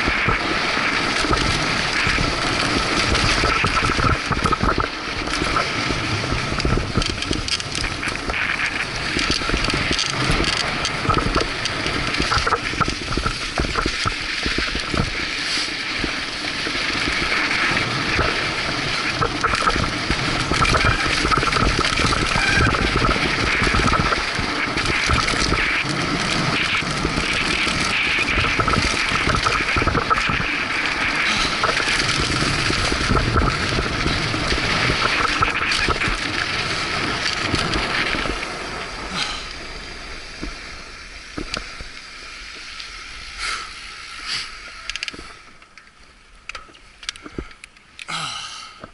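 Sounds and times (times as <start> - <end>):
bike knocks and rattles: 0.0 - 15.3, 15.9 - 38.6
wind rushing on microphone: 0.0 - 42.0
clicks and light knocks: 44.9 - 48.1.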